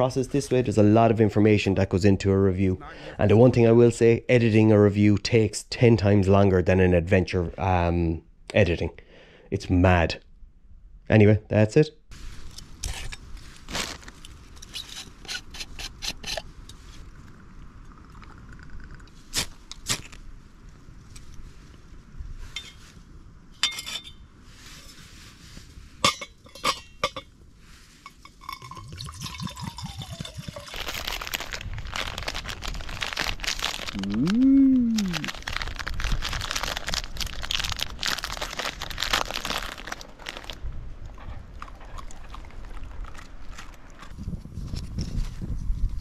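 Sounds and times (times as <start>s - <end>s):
packet tearing open: 30.6s - 40.6s
short vocal sound: 33.9s - 35.3s.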